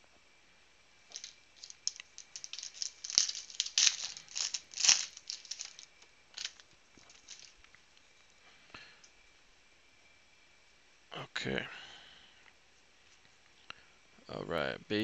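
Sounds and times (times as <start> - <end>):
foil wrapper crinkling and tearing: 1.1 - 7.6.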